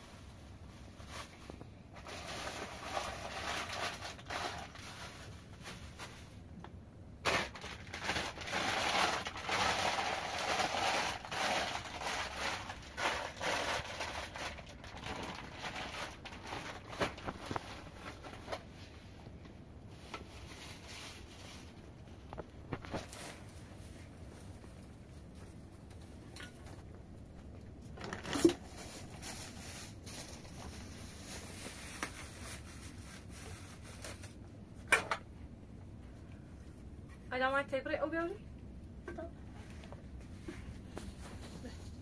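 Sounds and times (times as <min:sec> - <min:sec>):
plastic bag crinkling: 0:00.0 - 0:06.5, 0:07.2 - 0:19.2, 0:19.9 - 0:34.4.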